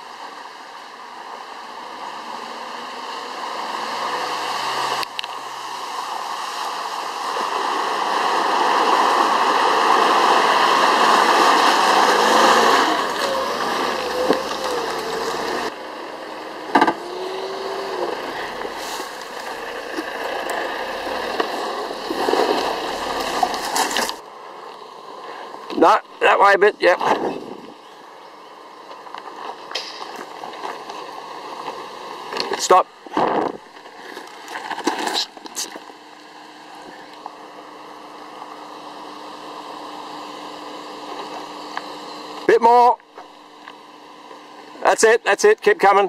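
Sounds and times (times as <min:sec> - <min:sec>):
off-road vehicle engine: 0:00.0 - 0:46.0
mud and water splashing: 0:03.8 - 0:15.7, 0:17.0 - 0:24.2.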